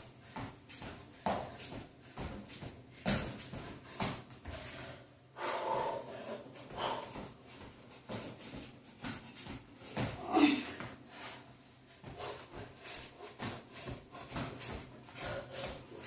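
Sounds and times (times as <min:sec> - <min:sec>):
person breathing hard: 0:03.4 - 0:16.0.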